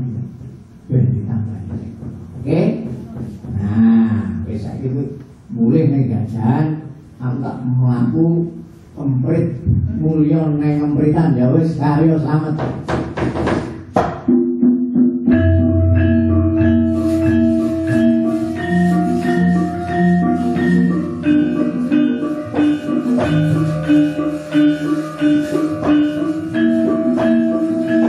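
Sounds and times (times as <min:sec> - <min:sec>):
gamelan metallophones striking notes: 0:14.2 - 0:28.0.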